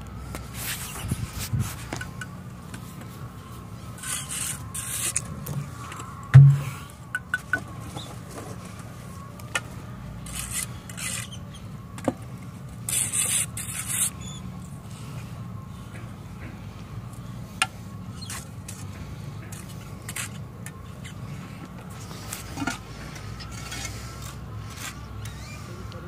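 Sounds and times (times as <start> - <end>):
trowels scraping mortar: 4.0 - 6.0, 10.2 - 11.4, 12.8 - 14.4
sharp knock: 6.4 - 6.7.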